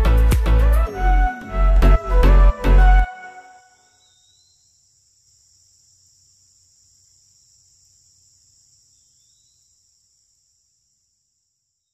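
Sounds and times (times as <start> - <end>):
faint cricket chorus: 3.6 - 11.9.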